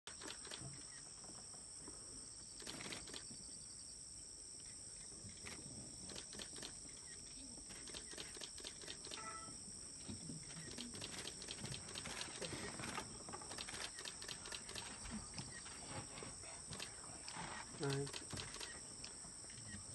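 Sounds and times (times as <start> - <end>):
high-pitched insect drone: 4.6 - 19.9
clicks and rustles: 10.1 - 19.2.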